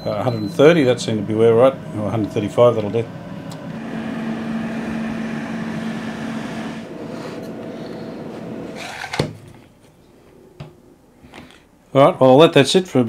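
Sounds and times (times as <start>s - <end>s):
air fryer fan hum: 0.0s - 9.4s.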